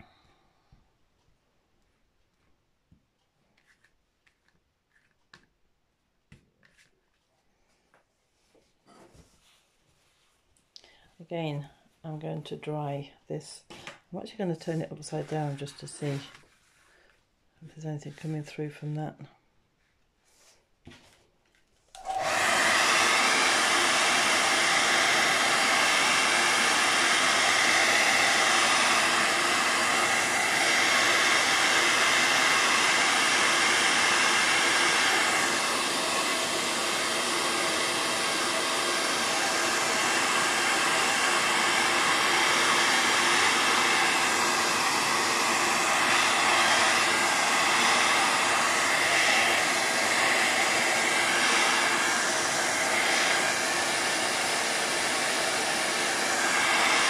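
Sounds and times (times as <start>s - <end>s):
hair dryer blowing: 0.0s - 0.3s, 13.6s - 16.4s, 21.9s - 57.0s.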